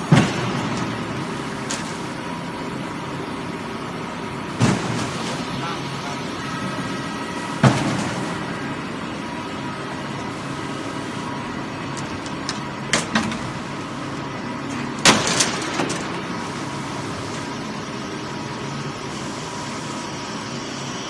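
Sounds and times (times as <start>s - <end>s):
machinery hum: 0.0s - 21.0s
faint whining tones: 0.8s - 21.0s.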